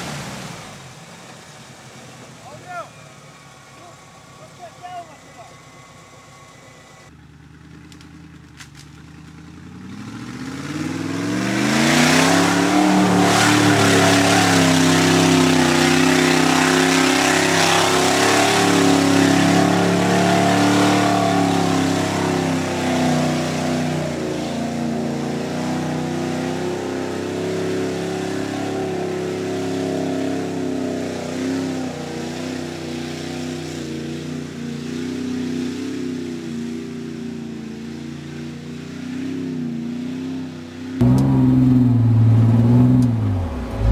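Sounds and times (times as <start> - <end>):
mud and water rushing from wheels: 0.0 - 43.9
engine revving: 6.5 - 35.9, 41.0 - 43.9.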